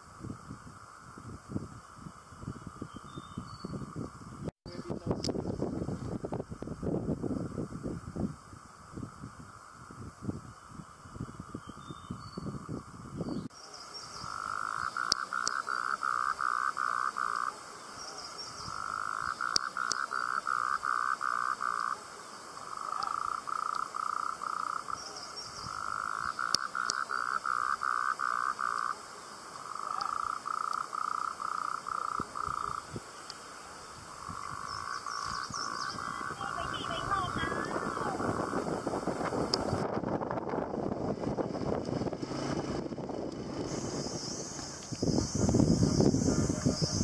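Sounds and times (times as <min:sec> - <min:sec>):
frog calling in pulsed notes: 0:14.2 - 0:17.5, 0:18.6 - 0:22.0, 0:25.7 - 0:28.9, 0:34.2 - 0:38.5.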